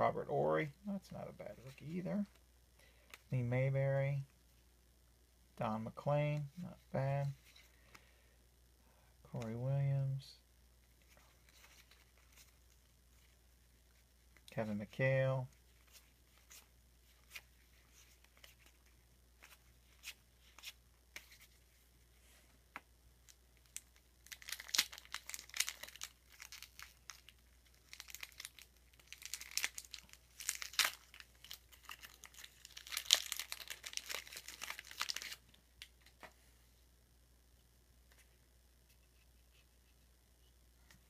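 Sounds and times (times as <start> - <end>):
wrapper crinkling and tearing: 23.6 - 36.1.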